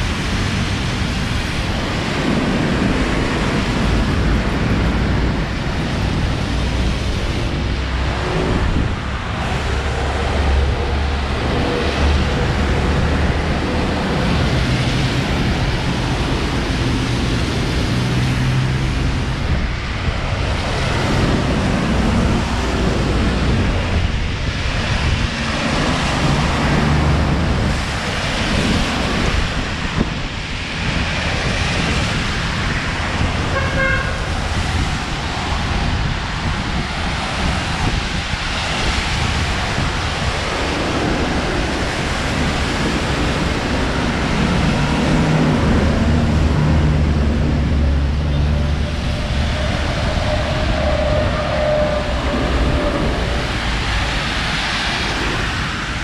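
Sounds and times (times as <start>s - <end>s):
road traffic passing: 0.0s - 56.0s
car horn toot: 33.5s - 34.3s.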